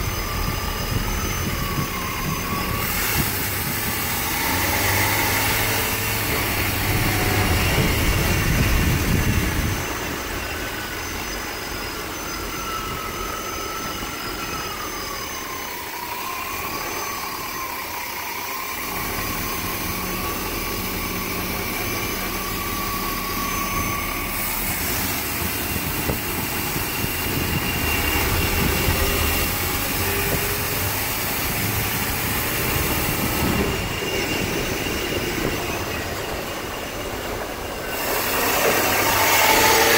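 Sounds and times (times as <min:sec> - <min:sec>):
engine running: 0:00.0 - 0:39.9
high wavering whistle: 0:00.0 - 0:39.9.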